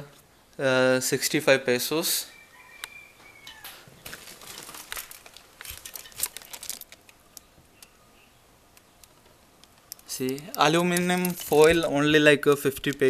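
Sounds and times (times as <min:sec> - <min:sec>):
crinkling and rustling handling: 0:03.6 - 0:08.0, 0:08.7 - 0:13.0.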